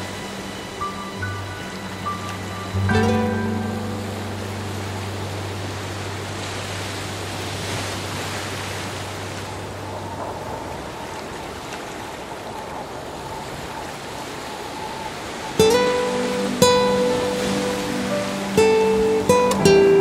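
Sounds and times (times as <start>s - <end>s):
acoustic guitar chord: 0.0s - 7.4s, 15.6s - 20.0s
sea waves breaking: 0.0s - 20.0s.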